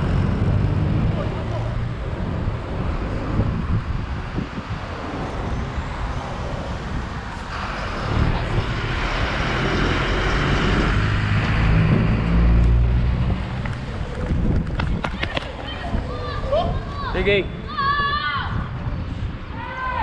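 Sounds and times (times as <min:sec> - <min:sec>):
bus driving past: 0:00.0 - 0:14.6
road traffic: 0:00.0 - 0:20.0.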